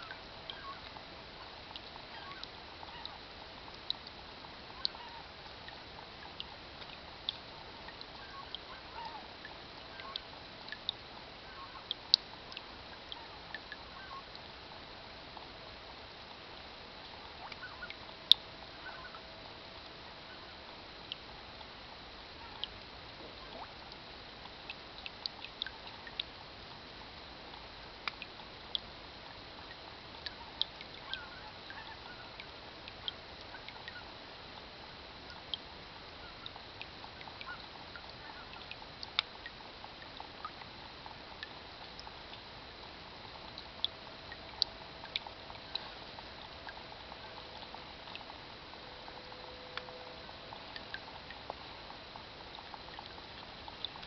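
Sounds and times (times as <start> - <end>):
rain pattering into water barrel: 0.0 - 54.0.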